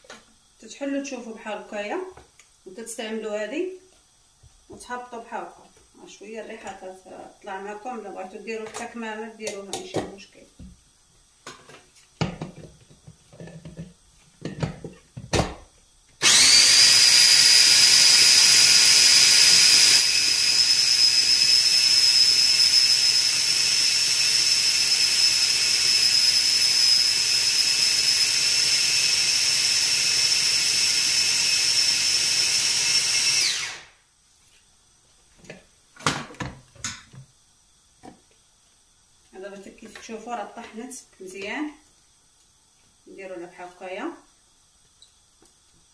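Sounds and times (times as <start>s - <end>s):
food chopper motor whining: 16.2s - 34.0s.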